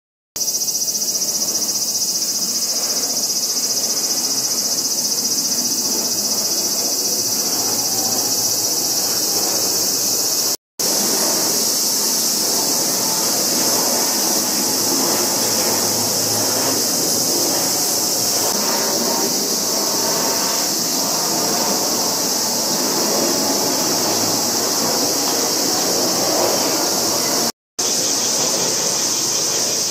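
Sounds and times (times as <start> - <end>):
high-pitched insect chorus: 0.4 - 29.9
jet engines rumbling: 0.6 - 29.9.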